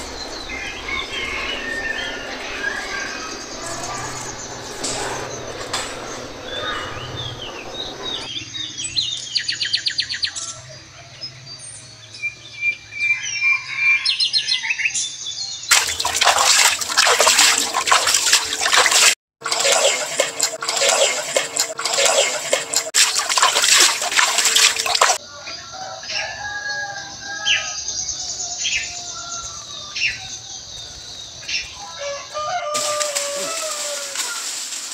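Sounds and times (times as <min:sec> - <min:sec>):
crackling rushing noise: 0:00.0 - 0:08.3
small birds chirping: 0:00.0 - 0:12.6.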